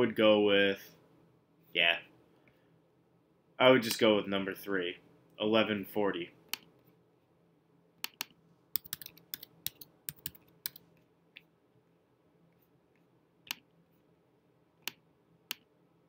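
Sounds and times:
computer keyboard typing: 8.0 - 10.8.

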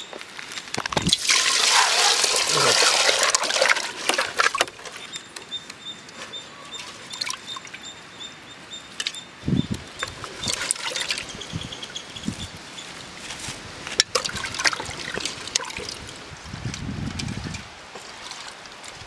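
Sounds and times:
water trickling and splashing: 1.0 - 5.2, 6.6 - 8.0, 9.9 - 12.4, 13.0 - 19.0.

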